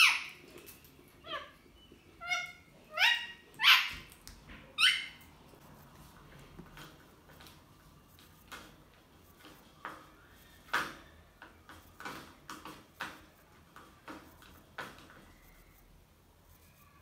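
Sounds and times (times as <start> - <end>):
parrots clicking and tapping: 8.2 - 15.3.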